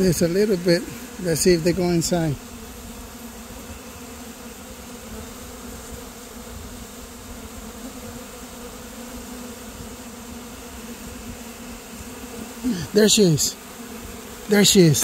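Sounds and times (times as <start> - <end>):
bees buzzing: 0.0 - 15.0.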